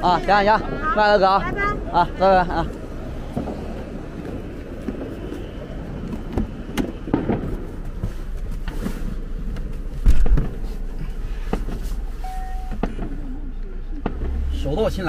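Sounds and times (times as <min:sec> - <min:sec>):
dull thump: 0:10.0 - 0:10.7
short single beep: 0:12.2 - 0:12.8.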